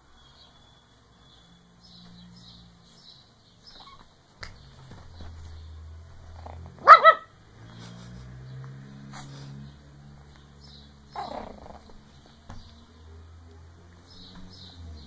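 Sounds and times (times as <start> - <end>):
puppy yapping: 3.7 - 4.1, 6.4 - 7.3, 11.1 - 12.0.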